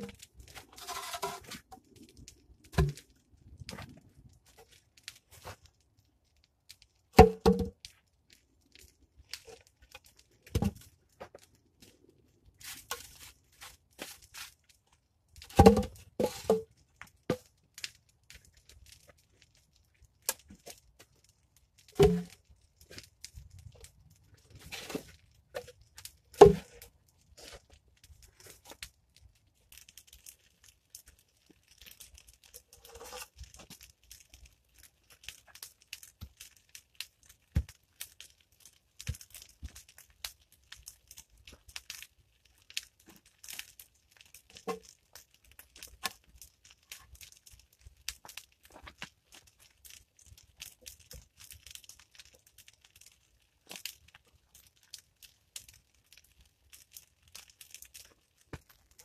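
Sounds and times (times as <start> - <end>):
wooden poles scraping: 0.0 - 1.8, 32.8 - 33.5.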